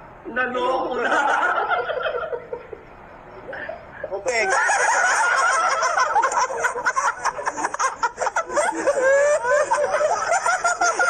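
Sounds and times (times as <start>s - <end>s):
people laughing together: 0.9s - 2.8s, 3.5s - 11.0s.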